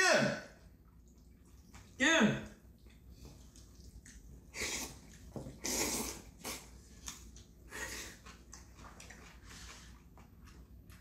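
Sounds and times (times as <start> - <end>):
chewing: 0.8 - 2.0, 2.6 - 11.0
wet noodle slurps: 3.4 - 10.1.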